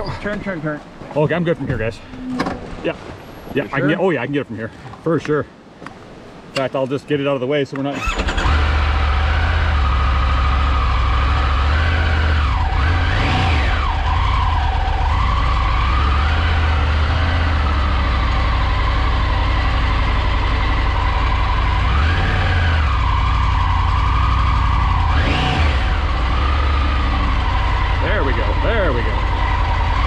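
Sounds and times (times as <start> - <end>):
off-road vehicle engine running: 8.0 - 30.0.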